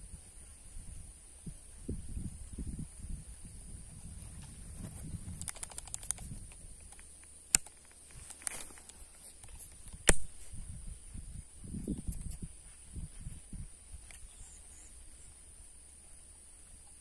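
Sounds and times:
sharp clicks: 0:05.1 - 0:10.3
rustling of fishing rod: 0:07.7 - 0:11.4.

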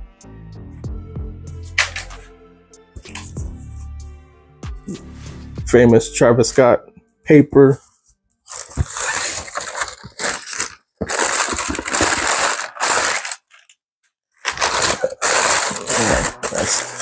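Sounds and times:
tissue paper crinkling: 0:08.5 - 0:13.8, 0:14.4 - 0:17.0.

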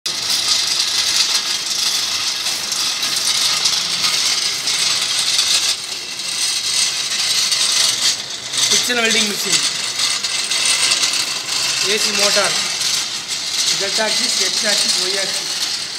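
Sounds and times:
carriage hand-cranked along screw: 0:00.1 - 0:15.9
welding machine rattling: 0:00.1 - 0:15.9.

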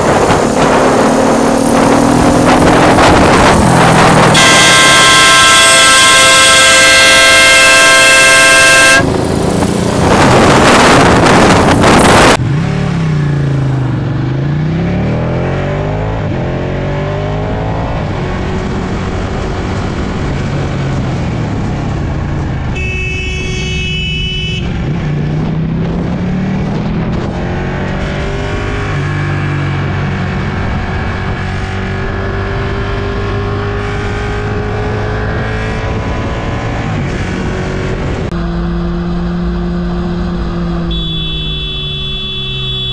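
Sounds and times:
loud rush of noise: 0:00.0 - 0:13.1
motorcycle engine revving: 0:00.0 - 0:42.9
vehicle horn blaring: 0:04.2 - 0:09.2, 0:22.7 - 0:24.8, 0:40.8 - 0:42.9.

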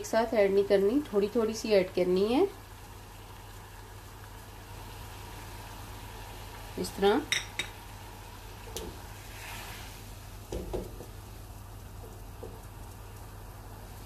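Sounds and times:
water boiling in saucepan: 0:00.0 - 0:14.0.

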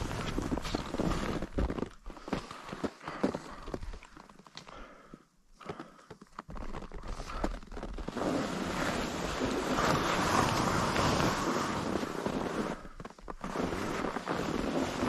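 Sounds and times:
skis scraping over snow: 0:00.0 - 0:04.1, 0:07.1 - 0:15.0.

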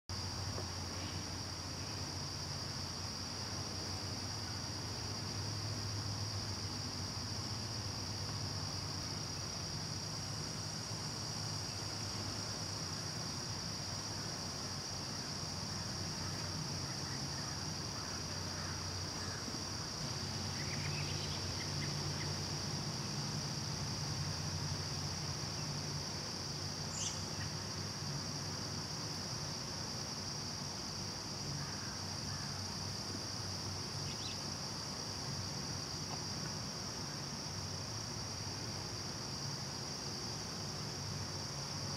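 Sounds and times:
insect high-pitched trill: 0:14.8 - 0:28.3, 0:33.9 - 0:35.9.

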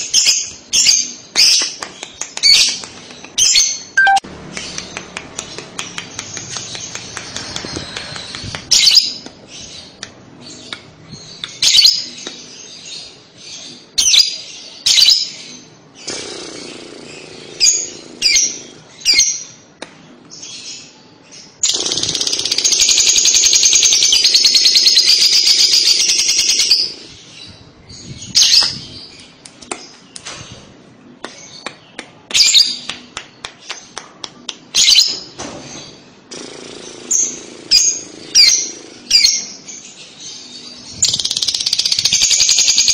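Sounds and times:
lovebird chirping: 0:03.4 - 0:05.6
bird fast continuous chatter: 0:04.6 - 0:14.0, 0:16.0 - 0:19.2, 0:21.5 - 0:30.7, 0:35.8 - 0:42.9.

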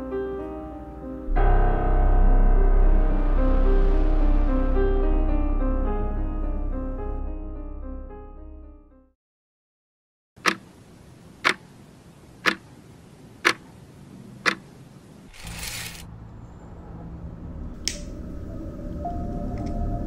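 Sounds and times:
low rumble: 0:01.3 - 0:08.1, 0:15.4 - 0:20.0
clock ticking: 0:10.4 - 0:10.7, 0:11.4 - 0:11.7, 0:12.4 - 0:12.7, 0:13.4 - 0:13.6, 0:14.4 - 0:14.6.

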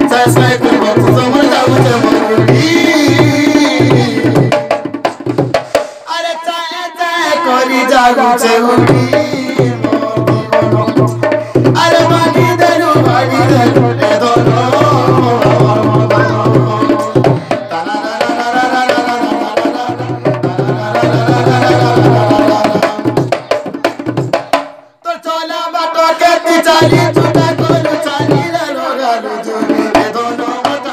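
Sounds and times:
hand-struck barrel drum: 0:00.0 - 0:05.9, 0:08.8 - 0:24.8.

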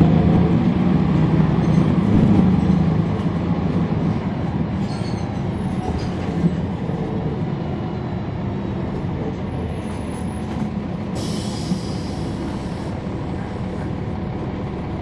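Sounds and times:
bus engine low rumble: 0:00.0 - 0:15.0
air hiss: 0:11.2 - 0:12.9.

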